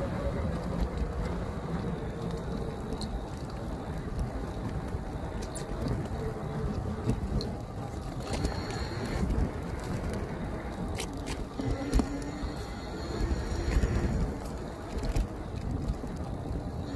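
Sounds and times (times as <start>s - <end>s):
faint motor whine: 0.0s - 16.9s
small clicks: 0.0s - 16.9s
wind on microphone: 0.0s - 16.9s.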